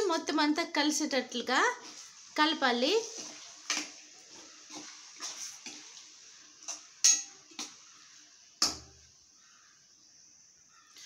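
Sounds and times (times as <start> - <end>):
spoon scraping and clinking on pan: 6.6 - 7.8.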